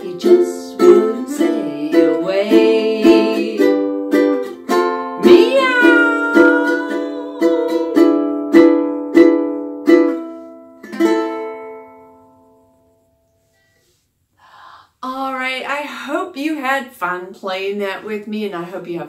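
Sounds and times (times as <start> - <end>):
woman singing: 0.0 - 4.1, 5.0 - 8.4
ukulele strumming: 0.0 - 12.6.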